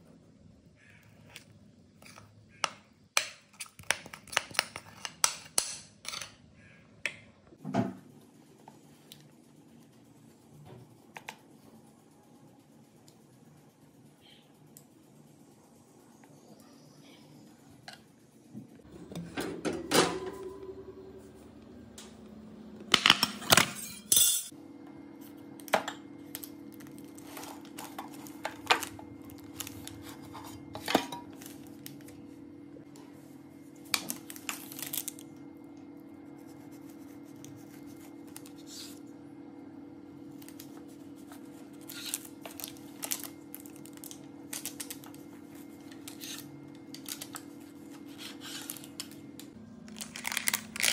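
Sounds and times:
steady low hum: 0:06.4 - 0:50.9.

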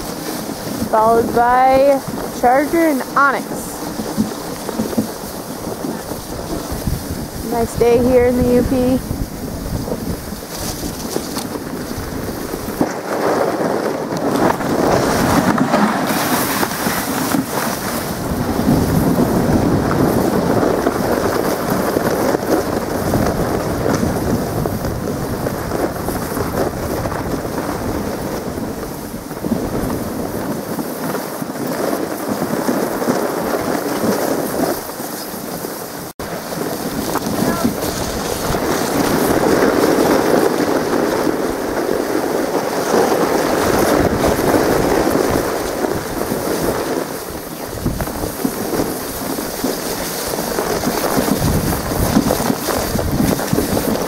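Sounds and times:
dog sled rumbling over snow: 0:00.0 - 0:54.0
sled runners scraping snow: 0:00.0 - 0:54.0
wind on microphone: 0:00.0 - 0:54.0.

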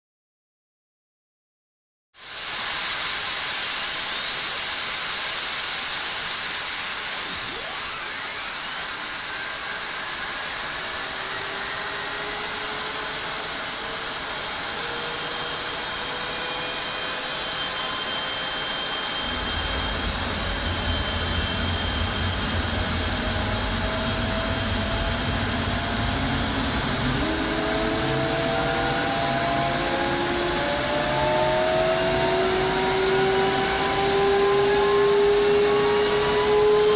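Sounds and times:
jet engine rushing hiss: 0:02.4 - 0:36.9
high whine climbing in pitch: 0:03.8 - 0:36.9
deep rumble: 0:19.2 - 0:30.8.

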